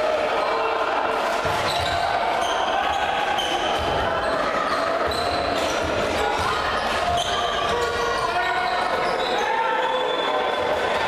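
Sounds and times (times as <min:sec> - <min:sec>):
voices of players and spectators: 0:00.0 - 0:11.0
shoe squeaks: 0:01.6 - 0:05.9, 0:06.6 - 0:10.6.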